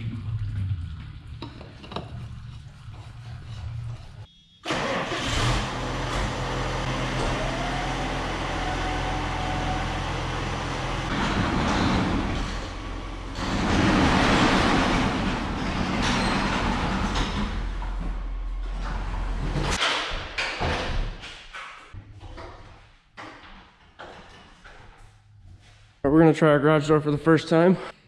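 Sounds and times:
tractor diesel engine running: 4.7 - 19.8
garage door rumbling closed: 4.7 - 21.2.

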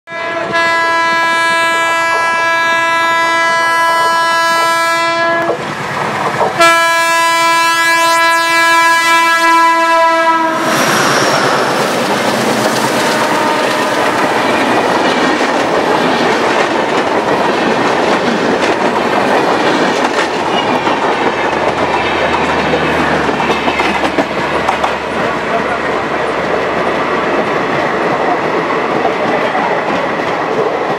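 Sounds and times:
locomotive horn blasts: 0.1 - 5.6, 6.6 - 10.6, 12.9 - 14.5
train rushing rumble: 3.4 - 7.7, 8.9 - 30.9
train wheels clattering over rails: 5.4 - 6.6, 10.6 - 30.9.

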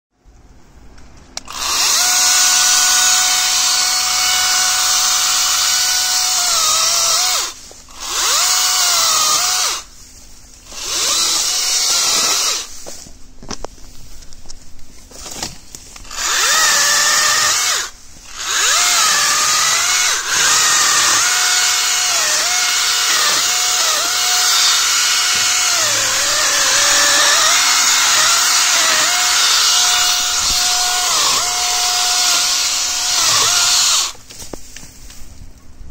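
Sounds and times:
mini chainsaw high whine: 1.5 - 9.9, 15.2 - 34.2.

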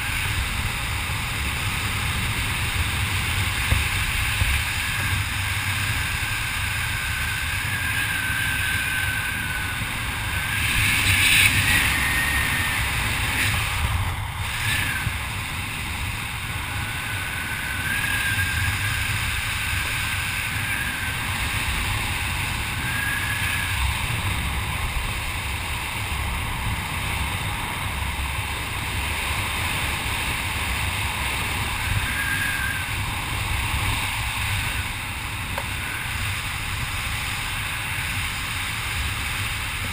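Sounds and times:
wind rushing over microphone: 0.0 - 39.9
faint wavering whistle: 4.8 - 13.8, 14.4 - 15.2, 16.6 - 24.2, 31.6 - 33.9, 35.6 - 36.3.

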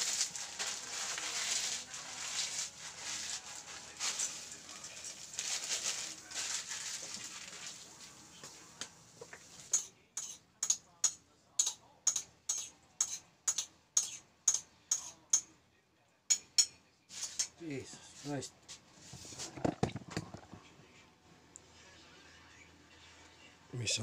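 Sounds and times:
pot hissing on gas stove: 0.0 - 2.0
fork clicking against ceramic bowl: 9.7 - 15.5.

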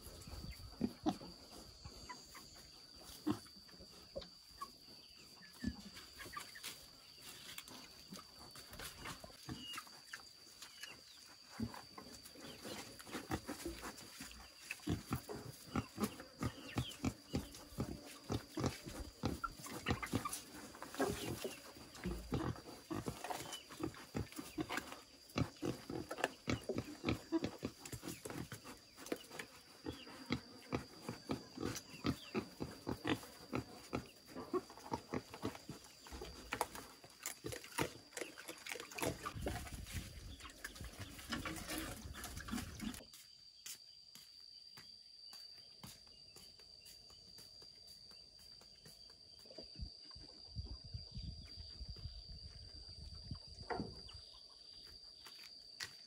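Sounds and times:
wild boars chewing noisily: 9.3 - 43.1.

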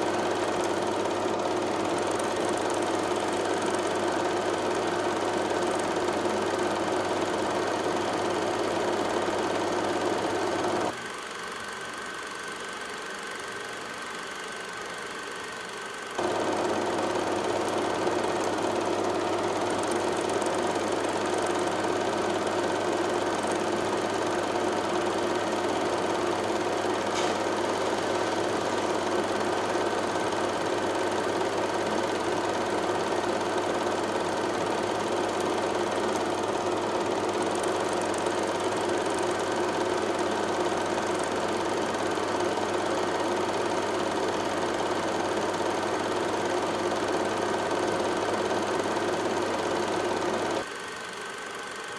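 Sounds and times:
motor humming: 15.6 - 42.2.

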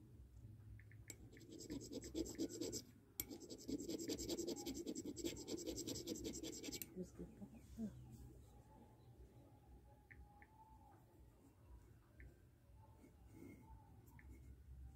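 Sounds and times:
stone scraping on ceramic: 1.4 - 6.9.

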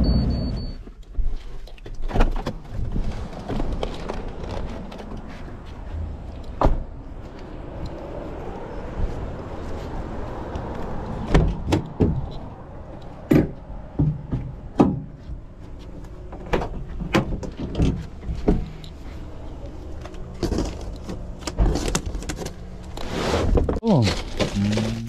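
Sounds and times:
van engine hum: 1.1 - 25.0
rustling scrape: 21.6 - 25.0.

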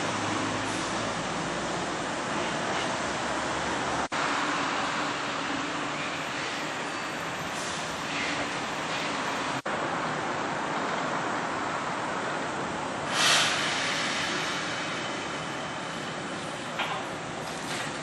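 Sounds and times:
train running and wheel noise: 0.0 - 18.0
loud hissing rush: 12.5 - 16.8.

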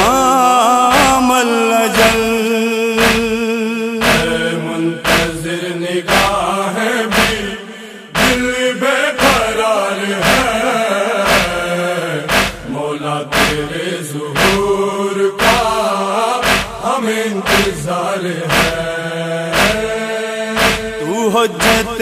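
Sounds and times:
male chorus chanting: 0.0 - 22.0
chest-beating hand strikes: 3.0 - 3.4, 4.0 - 5.5, 6.1 - 6.4, 7.1 - 7.6, 8.2 - 8.6, 9.2 - 9.6, 10.2 - 10.6, 11.2 - 11.7, 12.3 - 13.8, 14.4 - 15.8, 16.4 - 17.8, 18.5 - 18.8, 19.5 - 20.0, 20.6 - 21.0, 21.6 - 22.0.

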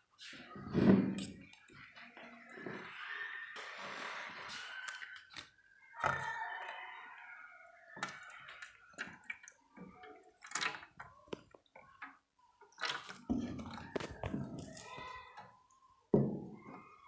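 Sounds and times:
water pouring into plastic bowl: 8.0 - 12.0, 12.6 - 15.4.

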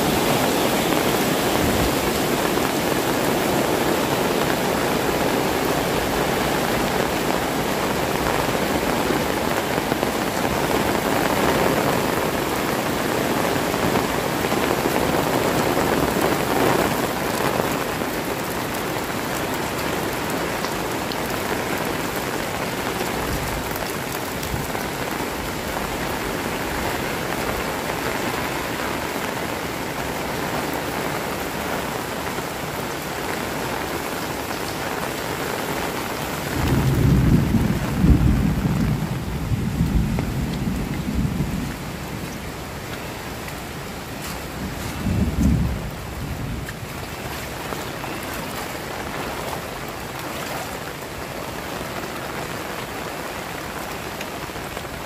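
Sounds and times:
heavy rain falling: 0.0 - 55.0.

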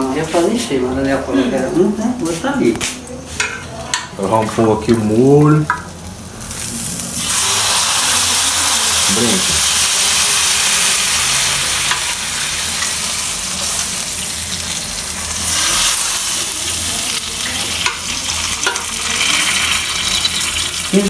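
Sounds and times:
meat juices sizzling in pan: 0.3 - 21.0
metal spoon clicking on pan: 17.8 - 19.0.

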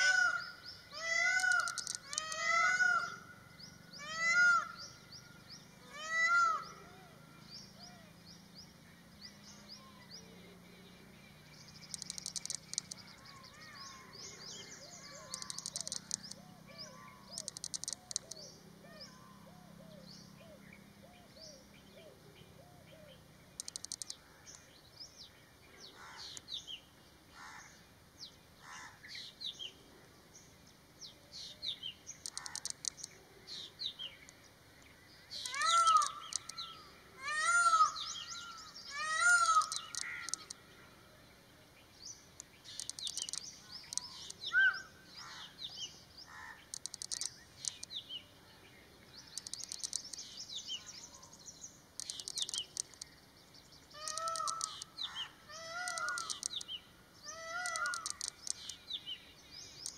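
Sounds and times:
loud arching bird calls: 0.0 - 8.2, 11.8 - 24.7, 25.8 - 26.5, 32.2 - 34.1, 35.3 - 40.9, 42.6 - 47.8, 53.8 - 59.0
small birds chirping and trilling: 0.0 - 59.9.

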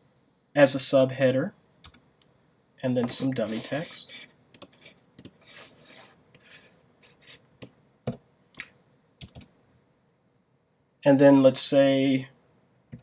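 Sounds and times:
keyboard and mouse clicks: 1.8 - 2.3, 4.5 - 5.4, 7.6 - 9.5
soft rubbing noise: 3.0 - 7.5.

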